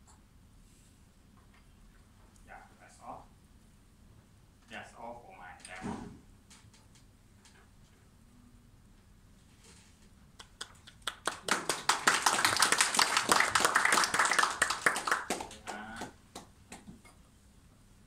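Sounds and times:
audience applauding: 10.4 - 16.2.

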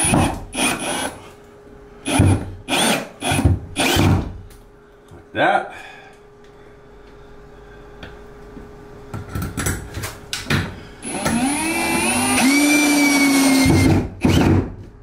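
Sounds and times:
power tool motor whining: 2.1 - 4.1, 11.0 - 14.6.

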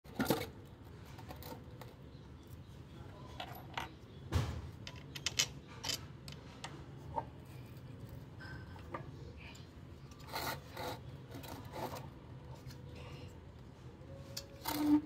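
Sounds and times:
low steady hum: 0.1 - 15.0
metallic clinks and knocks: 4.8 - 6.4.

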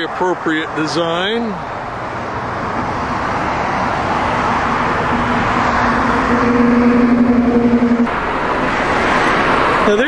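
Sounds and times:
cars passing on a road: 0.0 - 10.0
steady hum: 3.8 - 9.0.

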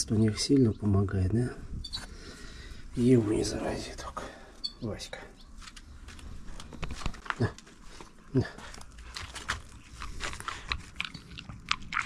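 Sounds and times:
pet chewing and crunching food: 6.0 - 12.0.

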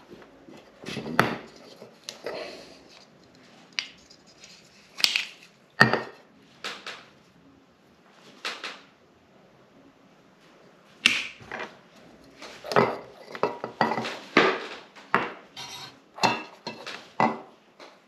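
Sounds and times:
metal cookware clattering: 12.6 - 14.2, 15.2 - 17.5.

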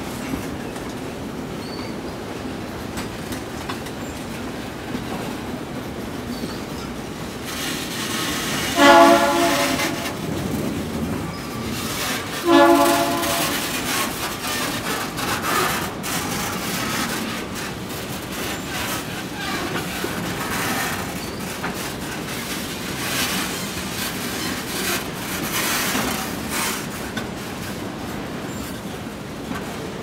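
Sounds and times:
freight wagons rumbling and clattering: 0.0 - 30.0
locomotive horn blasts: 8.6 - 10.3, 12.3 - 14.1.

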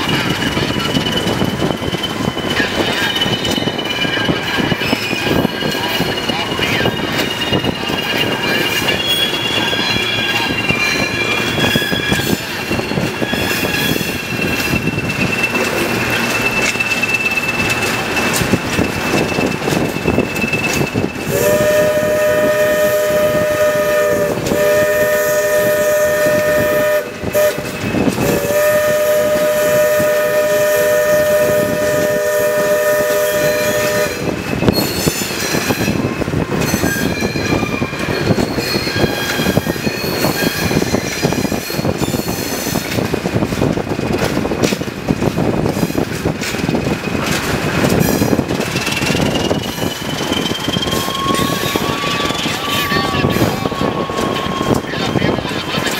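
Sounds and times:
diesel locomotive running: 0.0 - 55.9
locomotive air horn blasts: 21.3 - 34.4
thin high squeal: 48.8 - 55.4.

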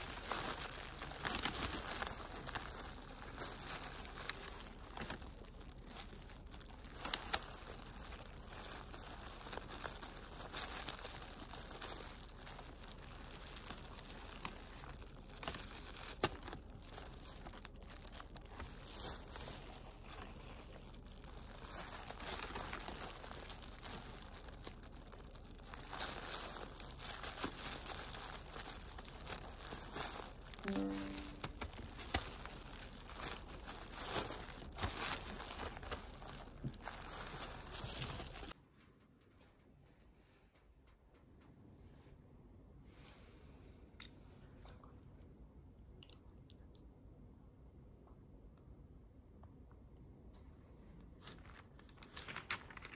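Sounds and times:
plastic gloves crinkling: 0.0 - 38.6, 51.0 - 52.9.

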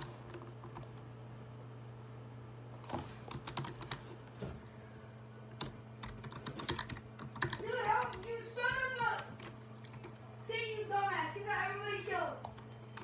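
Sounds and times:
child's voice: 7.6 - 9.3, 10.4 - 12.4.

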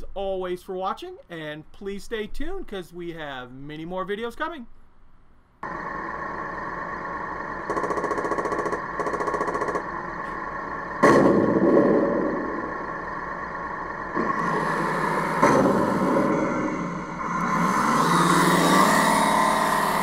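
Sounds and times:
toy tank engine sound: 7.4 - 10.7, 14.1 - 20.0
machine-gun fire bursts: 7.7 - 9.9, 11.0 - 12.5
loud gun shot: 11.0 - 12.6.

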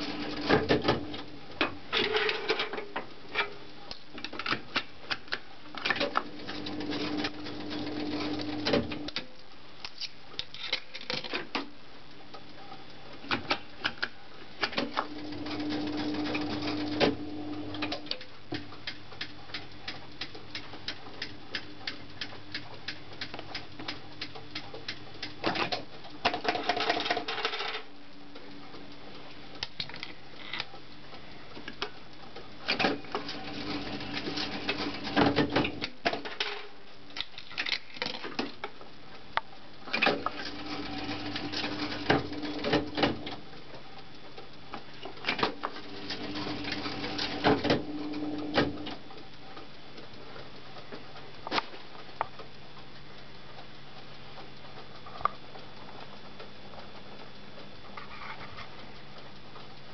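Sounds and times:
motor hum: 6.2 - 9.1.

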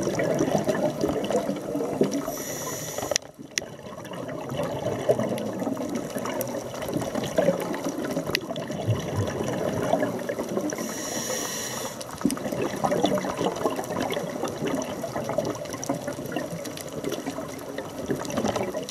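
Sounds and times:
diver's exhaled bubbles gurgling: 0.0 - 18.9
breath hissing through regulator: 2.2 - 3.2, 10.7 - 12.1.

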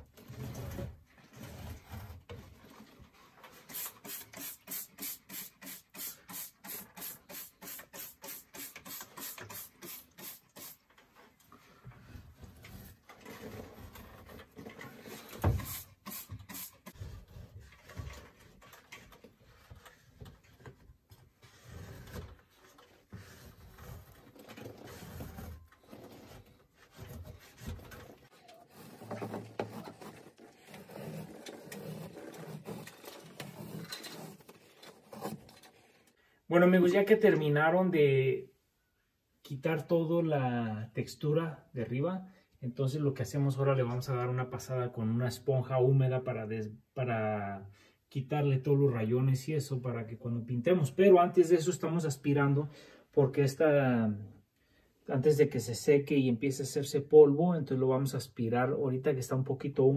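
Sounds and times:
spray bottle squirts: 3.7 - 10.9, 15.5 - 17.0
spatula scraping ceiling: 21.4 - 36.1.

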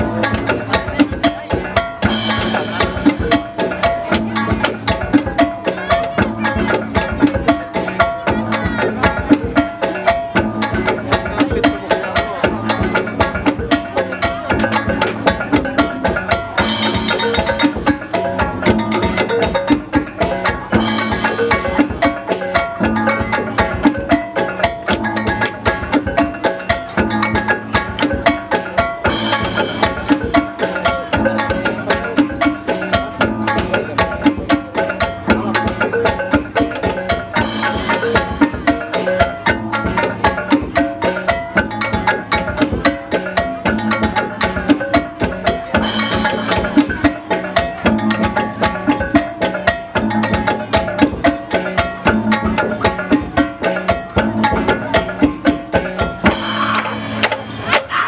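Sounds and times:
percussion dance music: 0.0 - 58.0.

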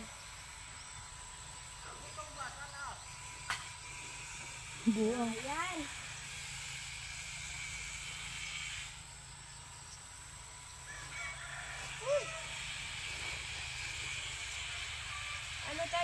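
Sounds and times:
steady outdoor hiss: 0.0 - 16.0
animal call rising and falling: 11.1 - 12.7.

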